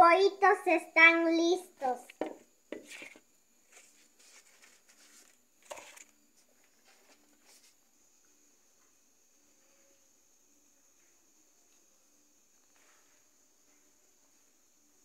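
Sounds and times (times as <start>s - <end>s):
faint corn husk rustles: 2.8s - 7.8s.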